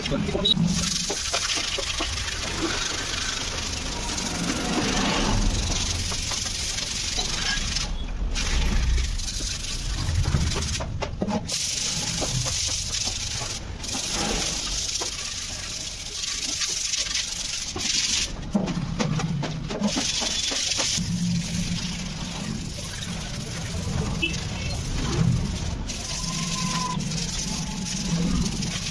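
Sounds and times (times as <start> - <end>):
hands scrubbing metal tank: 0.6 - 7.3, 9.0 - 28.9.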